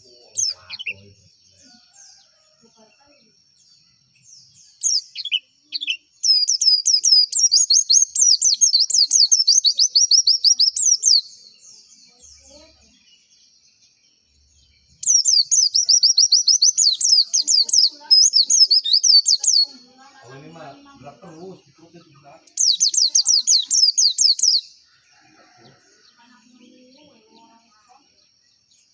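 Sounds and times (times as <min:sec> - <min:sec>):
bird chirping high and fast: 0:00.0 - 0:02.1, 0:04.4 - 0:24.8.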